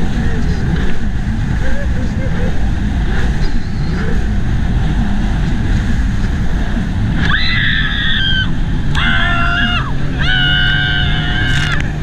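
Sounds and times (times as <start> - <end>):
jet ski engine: 0.0 - 12.0
people screaming: 7.2 - 12.0.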